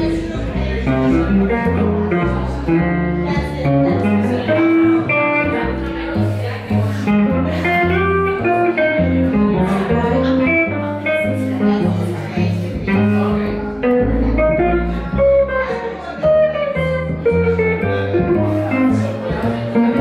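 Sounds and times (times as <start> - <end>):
archtop guitar single-note lines: 0.0 - 20.0
upright bass walking notes: 0.0 - 20.0.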